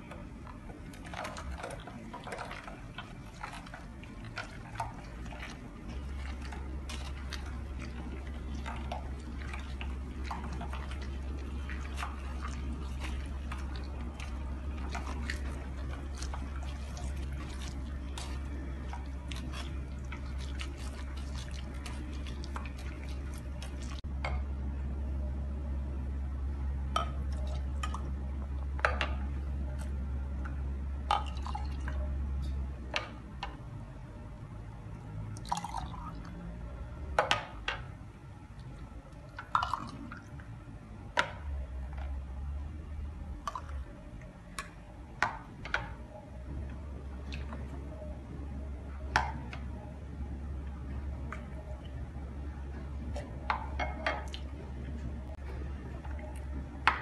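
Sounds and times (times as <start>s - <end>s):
fruit squishing through sieve: 0.0s - 24.4s, 35.1s - 57.0s
low steady hum: 0.0s - 57.0s.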